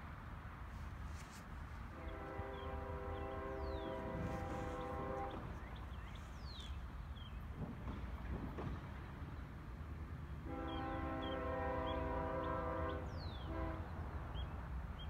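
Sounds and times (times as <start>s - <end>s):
distant train horn: 1.8s - 6.2s, 10.4s - 14.4s.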